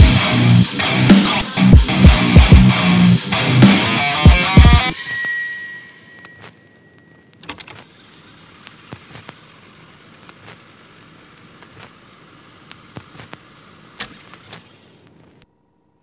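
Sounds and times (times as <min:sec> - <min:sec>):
hiss with crackles and pops: 0:05.0 - 0:15.5.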